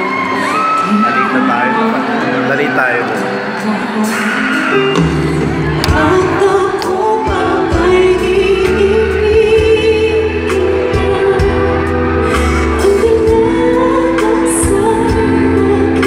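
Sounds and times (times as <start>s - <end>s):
live band: 0.0s - 16.0s
woman singing into microphone: 3.2s - 16.0s
bass: 5.0s - 16.0s.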